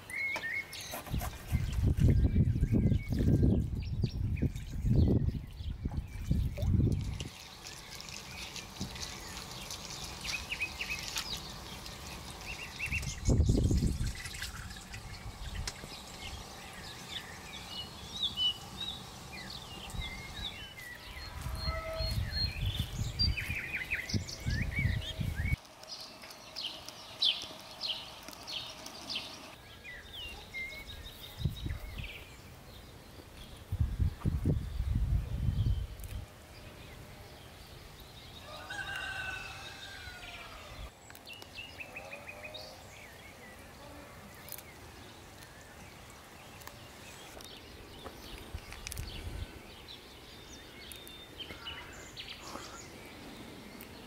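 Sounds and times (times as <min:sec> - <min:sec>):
birds chirping: 0:00.0 - 0:54.0
liquid trickling: 0:06.0 - 0:20.3.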